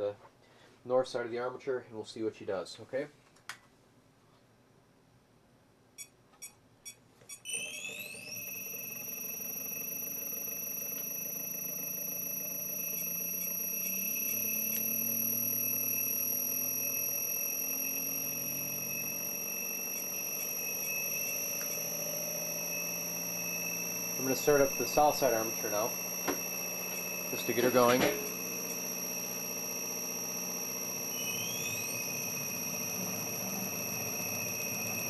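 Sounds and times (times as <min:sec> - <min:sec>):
high-pitched electric whine: 0:07.4 - 0:35.0
low wavering hum: 0:08.0 - 0:35.0
clicks: 0:10.8 - 0:15.6, 0:19.8 - 0:22.1.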